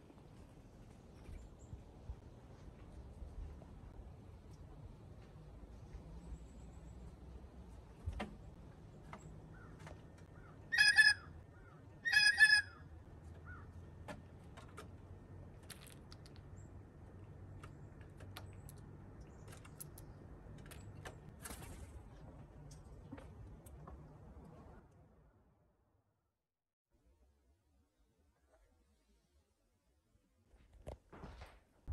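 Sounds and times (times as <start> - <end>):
blue jay harsh calls: 10.4 - 12.8.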